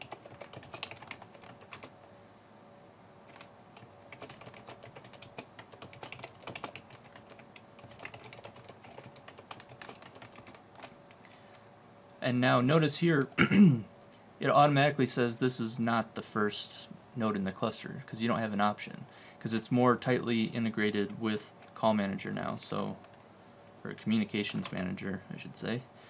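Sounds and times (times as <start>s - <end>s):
typing on computer keyboard: 0.0s - 1.9s, 3.3s - 11.0s.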